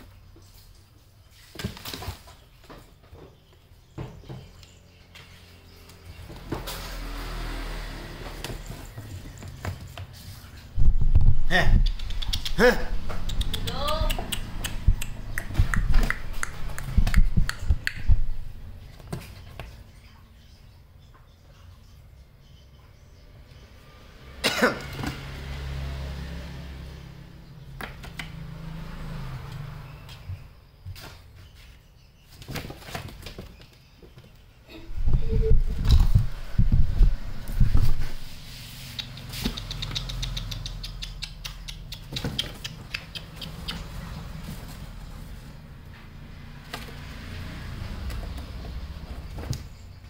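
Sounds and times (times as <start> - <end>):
kitten thumping and rustling: 6.0 - 11.5, 32.3 - 39.7, 43.8 - 50.0
sharp clicks and light taps: 38.9 - 43.9.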